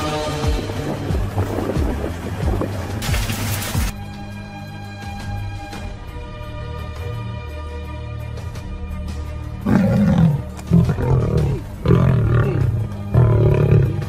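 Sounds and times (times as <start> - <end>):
background music: 0.0 - 14.0
lions growling and roaring: 9.6 - 14.0.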